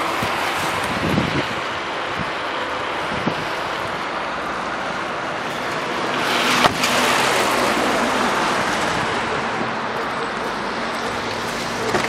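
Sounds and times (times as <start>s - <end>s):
wind noise on microphone: 0.0s - 4.3s
car door shutting: 6.6s - 7.0s.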